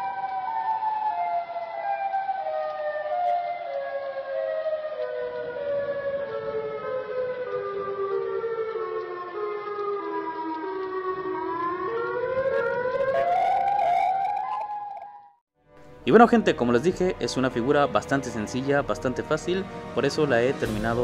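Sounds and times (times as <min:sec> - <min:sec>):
siren falling and rising tone: 0:00.0 - 0:15.4.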